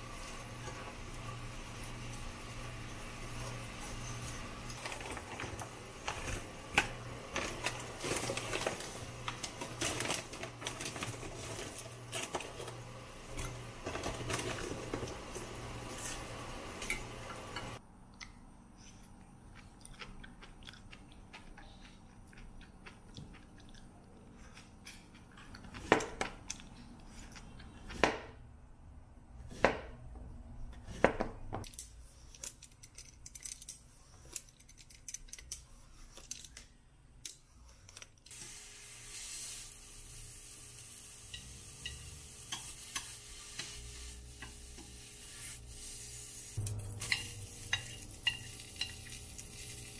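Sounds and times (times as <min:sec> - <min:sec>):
food sizzling in frying pan: 0:38.3 - 0:49.9
chopsticks stirring in pan: 0:41.2 - 0:49.9.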